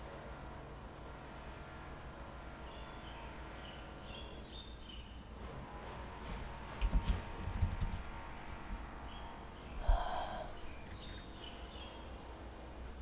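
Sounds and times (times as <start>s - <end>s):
low steady hiss: 8.9s - 13.0s.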